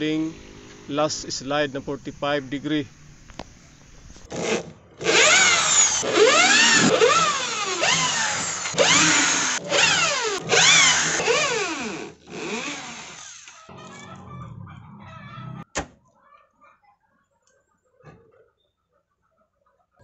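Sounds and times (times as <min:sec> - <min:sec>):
electric drill motor whine: 0:05.0 - 0:13.7.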